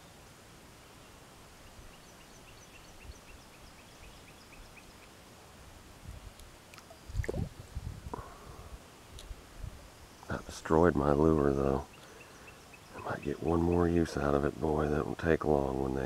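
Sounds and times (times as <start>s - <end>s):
small bird chirping: 1.0s - 5.2s, 11.4s - 14.3s.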